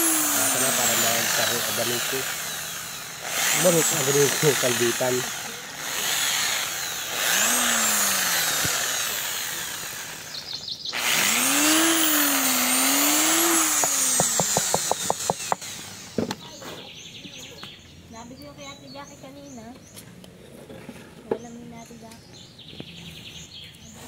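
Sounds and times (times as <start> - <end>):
electric drill boring wood: 0.0 - 16.5.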